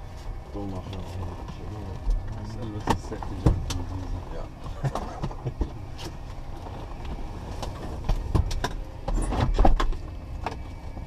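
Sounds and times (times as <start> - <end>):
clicks knocks and thumps in cabin: 1.5 - 3.9, 4.6 - 6.2, 7.0 - 11.0.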